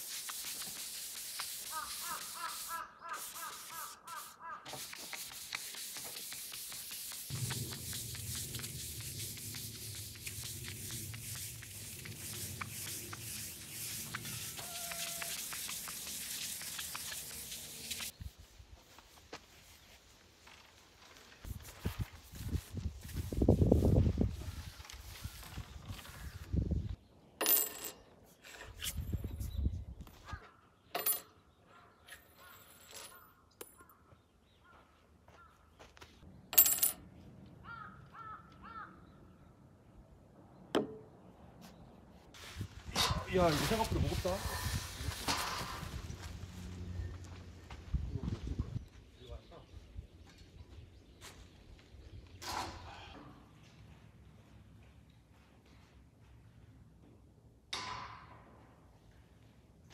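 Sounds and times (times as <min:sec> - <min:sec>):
pad rubbing on wood: 0:00.0 - 0:18.1
bird calls: 0:01.7 - 0:04.8
coin clinking on table: 0:27.4 - 0:28.0, 0:31.0 - 0:31.3, 0:36.5 - 0:37.0.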